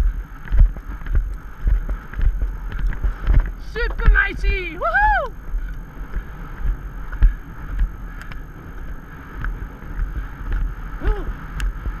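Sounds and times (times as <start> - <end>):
hoofbeats on sandy track: 0.0 - 12.0
person calling out: 3.7 - 5.3, 11.0 - 11.4.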